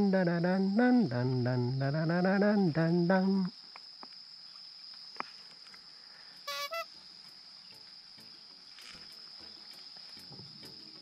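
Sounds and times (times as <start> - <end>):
insects trilling: 0.0 - 11.0
short pitched calls: 6.4 - 7.0.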